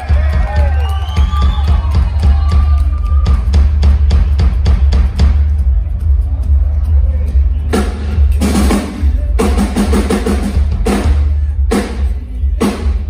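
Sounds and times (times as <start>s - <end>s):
drum kit through a pa: 0.0s - 13.0s.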